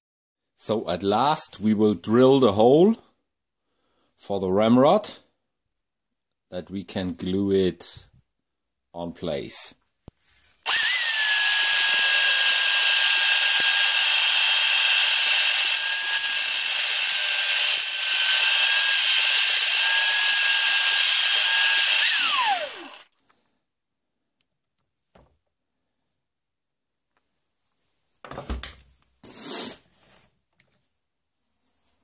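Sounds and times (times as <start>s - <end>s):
power drill whining: 10.6s - 23.2s
drill bit cutting hiss: 10.7s - 23.1s.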